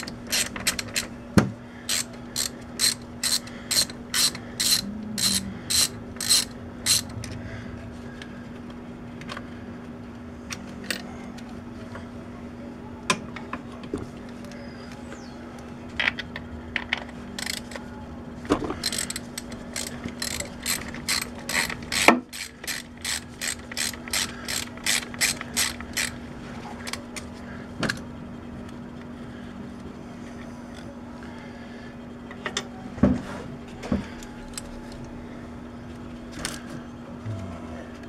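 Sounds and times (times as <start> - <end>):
ratchet wrench clicking: 0.0 - 1.1, 1.9 - 7.2, 17.4 - 17.8, 18.8 - 26.1.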